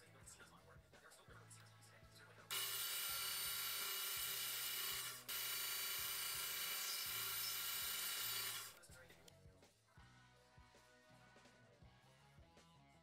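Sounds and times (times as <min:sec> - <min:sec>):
drill press high-pitched whine: 0:02.5 - 0:08.8.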